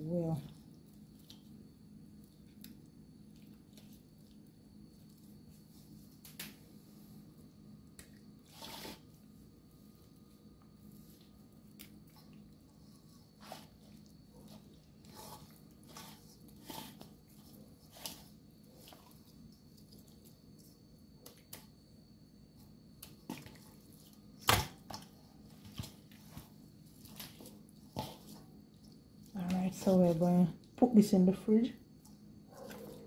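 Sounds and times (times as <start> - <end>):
hands squelching and slapping meat: 23.0 - 30.0.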